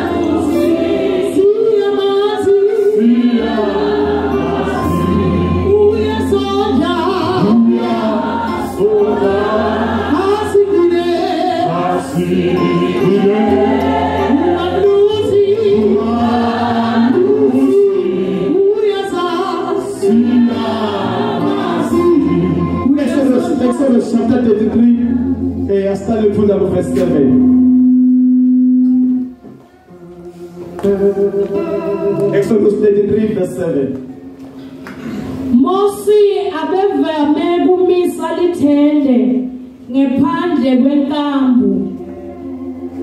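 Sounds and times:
congregation singing: 0.0 - 32.7
man singing into a microphone: 5.6 - 9.4
steady low bass: 21.3 - 29.3.

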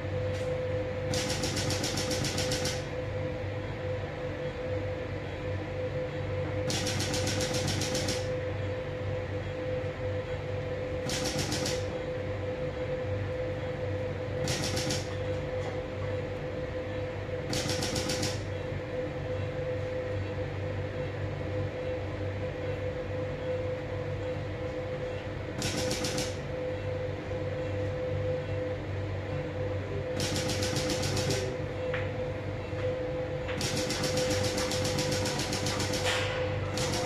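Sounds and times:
steady hum: 0.0 - 37.0
lithotripter rapid clicks: 1.1 - 2.8, 6.7 - 8.3, 11.1 - 11.8, 14.5 - 15.1, 17.5 - 18.4, 25.6 - 26.4, 30.2 - 31.5, 33.6 - 36.1, 36.7 - 37.0.

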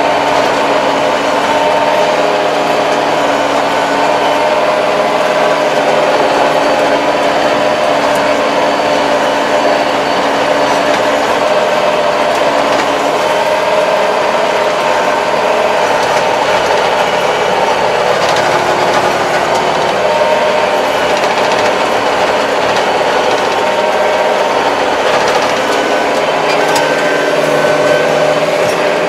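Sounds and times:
tractor engine drone with whine: 0.0 - 29.0.

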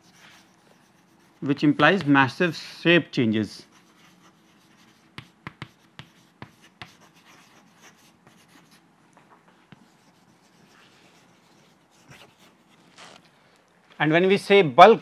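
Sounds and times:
chalk scratching on blackboard: 0.0 - 2.1, 3.6 - 8.9, 9.7 - 13.2
chalk tapping on blackboard: 0.0 - 2.2, 3.7 - 8.8.

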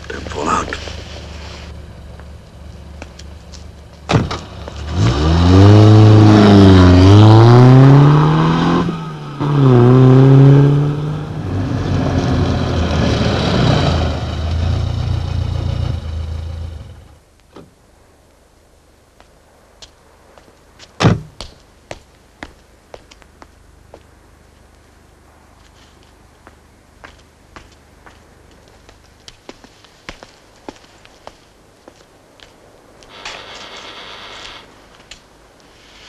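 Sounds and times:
car engine idling and revving: 0.0 - 17.3
sharp thump: 4.1 - 4.5, 21.0 - 21.4.

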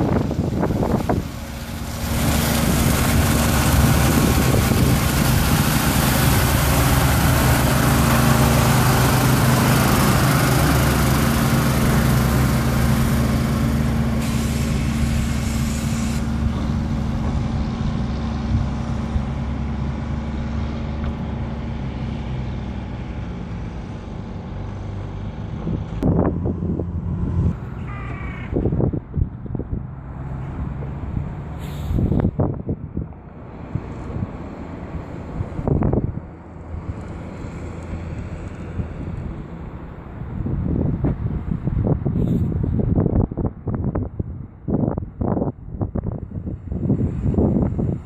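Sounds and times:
diesel truck engine running: 0.0 - 48.0
loud hiss of water spray: 0.2 - 17.1, 31.6 - 32.3.

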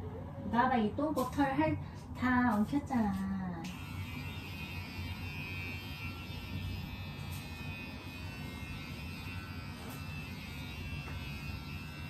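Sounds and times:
electric hair clippers buzzing: 3.6 - 12.0.

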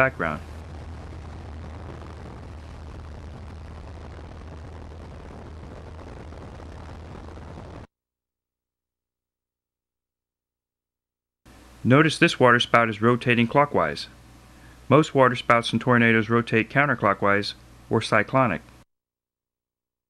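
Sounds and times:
wind rushing: 0.0 - 7.9.

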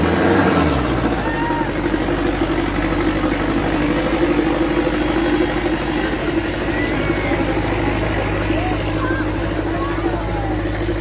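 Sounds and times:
tractor diesel engine labouring: 0.0 - 11.0.

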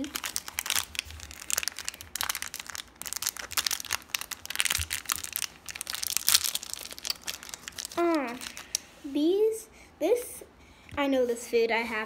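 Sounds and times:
wrapper crinkling and rustling: 0.0 - 8.8.

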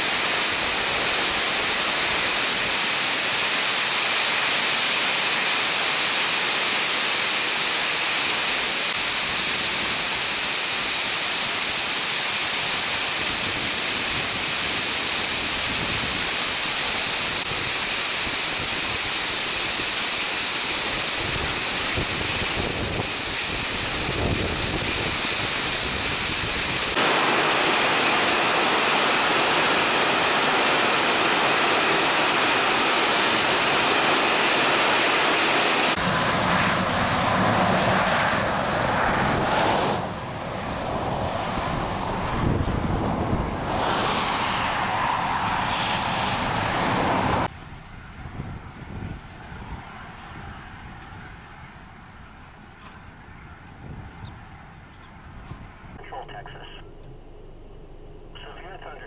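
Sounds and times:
wind buffeting microphone: 20.7 - 27.3, 36.0 - 56.0.

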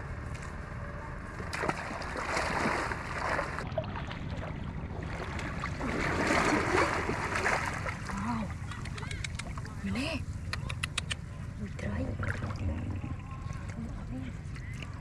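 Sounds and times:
water splashing and sloshing: 1.4 - 9.9, 11.8 - 15.0.

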